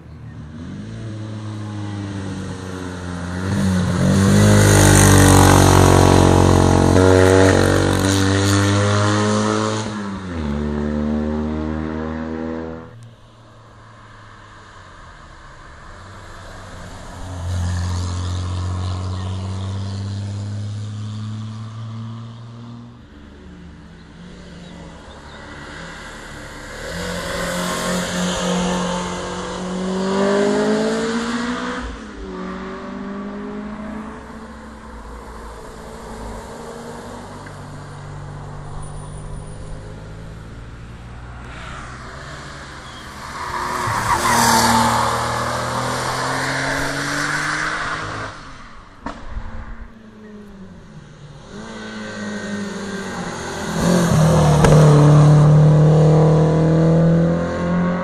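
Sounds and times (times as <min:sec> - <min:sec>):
race cars accelerating: 0:00.1 - 0:13.0, 0:14.1 - 0:58.0.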